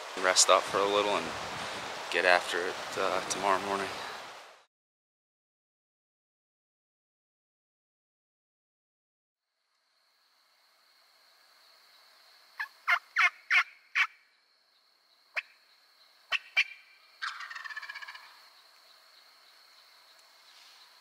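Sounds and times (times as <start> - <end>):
short sharp turkey calls: 12.6 - 14.2, 16.3 - 18.4
turkey gobbling: 12.6 - 14.2, 16.3 - 18.4.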